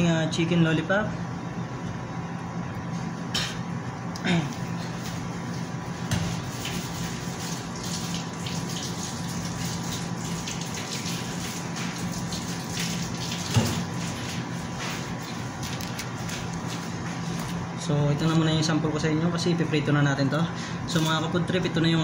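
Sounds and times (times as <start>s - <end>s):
low background hum: 0.0s - 22.0s
running water: 4.7s - 17.5s.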